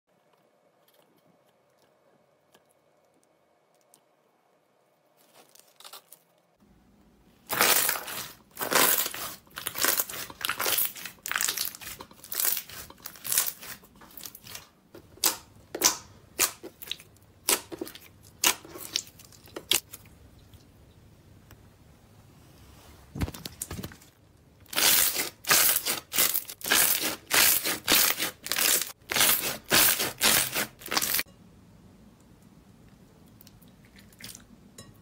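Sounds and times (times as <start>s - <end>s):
slime crackling and popping: 7.5s - 14.5s.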